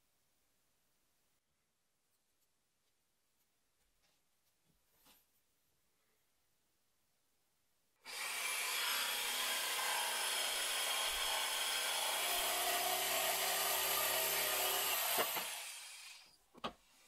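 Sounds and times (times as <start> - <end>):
jigsaw cutting wood: 8.0 - 16.3.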